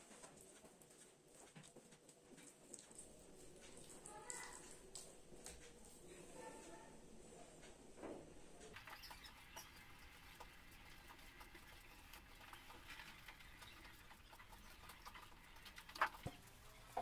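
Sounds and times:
hands patting wet mortar: 8.8 - 17.0.

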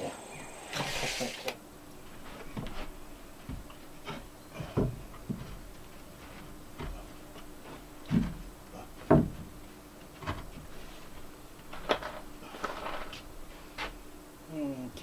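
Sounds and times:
wooden boards knocking and scraping: 2.4 - 13.2.

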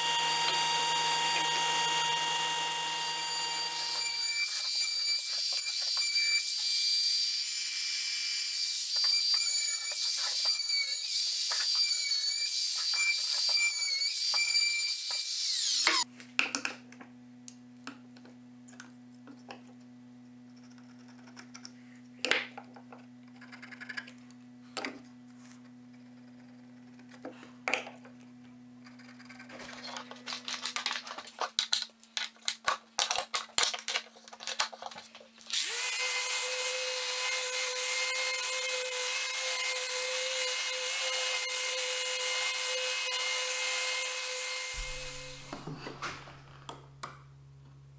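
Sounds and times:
orbital sander running: 0.0 - 4.1, 35.6 - 45.6
power tool whining: 0.0 - 16.0, 35.5 - 45.8.

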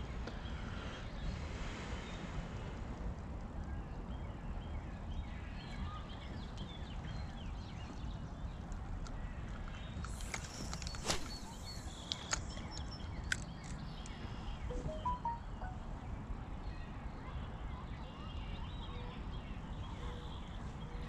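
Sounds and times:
birds chirping: 10.1 - 13.3.

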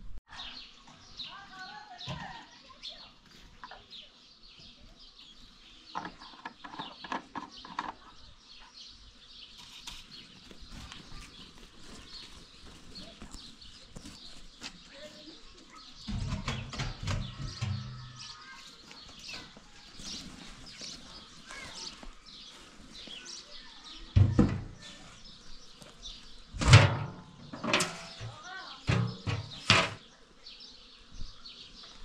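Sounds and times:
birds chirping: 0.3 - 32.0
metal pot knocking on ground: 26.6 - 30.0.

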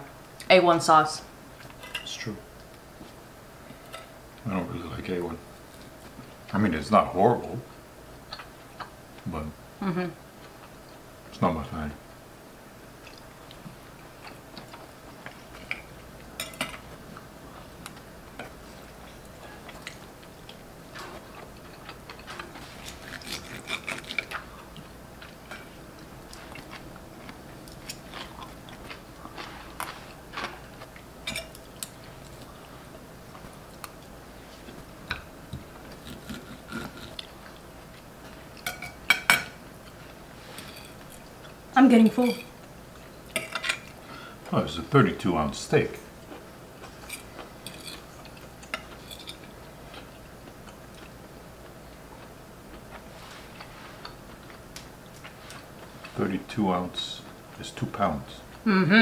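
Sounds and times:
chewing: 8.3 - 9.0, 13.0 - 39.0, 46.2 - 56.2
cutlery scraping on ceramic plates: 47.0 - 48.1.

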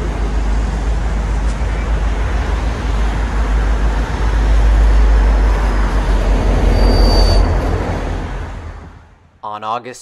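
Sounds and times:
diesel train engine rumbling: 0.0 - 9.4
highway traffic noise: 0.0 - 9.4
short high-pitched squeal: 6.3 - 8.1.

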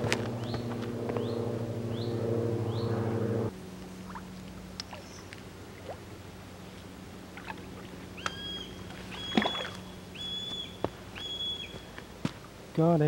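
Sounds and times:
bite alarm beeping: 8.2 - 11.9.

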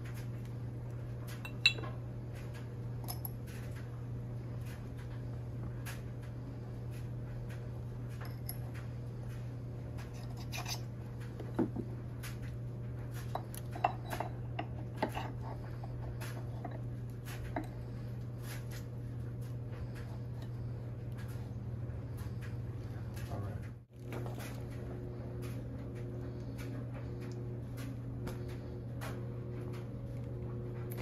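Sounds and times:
low steady hum: 0.0 - 31.0
light metal clinks and taps: 1.3 - 2.0.

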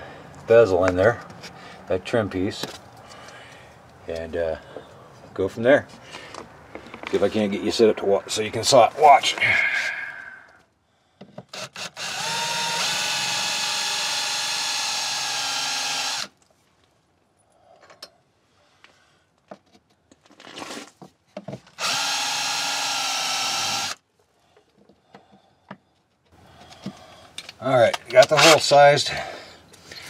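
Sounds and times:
cordless drill boring through siding: 11.5 - 16.4, 21.8 - 24.0.

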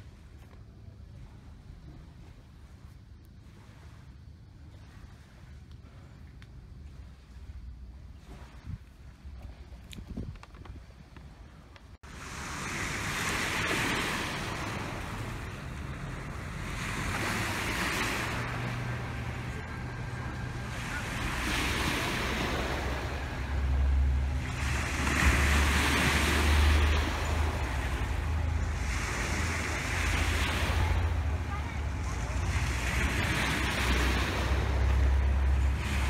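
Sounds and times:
low boat engine rumble: 0.0 - 36.0
wind buffeting microphone: 0.0 - 36.0
water rushing: 12.0 - 36.0.

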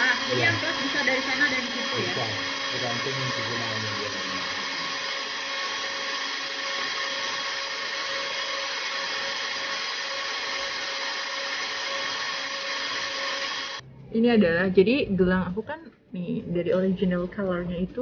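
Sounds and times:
rotary tool whining: 0.0 - 13.8.

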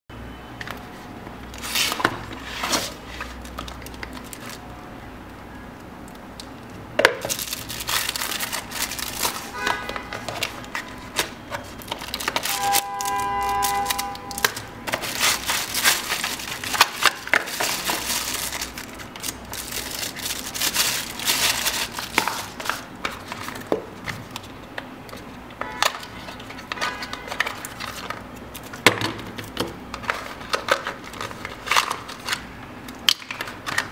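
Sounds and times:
cardboard rustling and scraping: 1.0 - 3.7, 7.3 - 24.6
short squeaky tone: 12.5 - 14.5.

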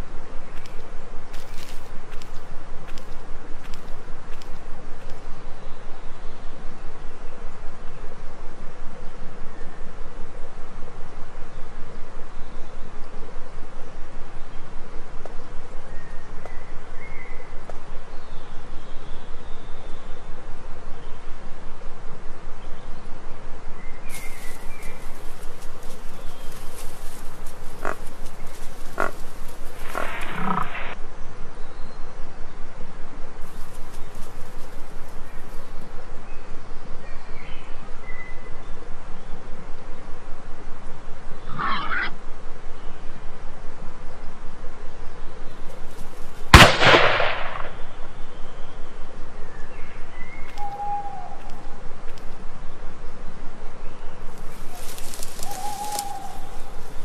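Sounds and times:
pulsing background noise: 0.0 - 57.0
wild boar grunting: 27.6 - 31.0
rifle shot with echo: 46.5 - 48.0.

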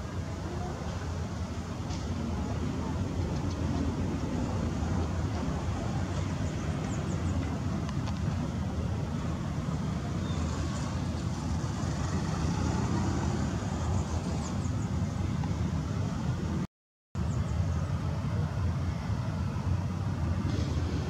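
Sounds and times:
distant jet and tug rumble: 0.0 - 16.6, 17.2 - 21.0.

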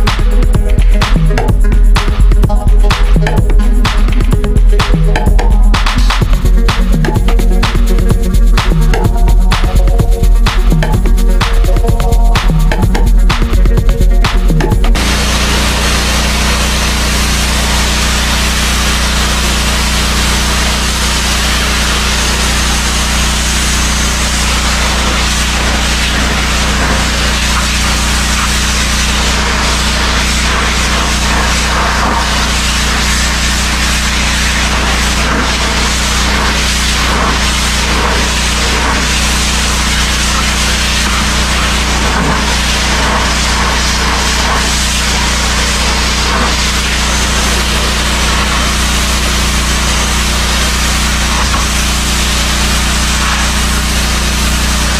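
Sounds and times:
pressure washer hum: 0.0 - 54.9
water jet hissing on metal siding: 15.0 - 54.9.

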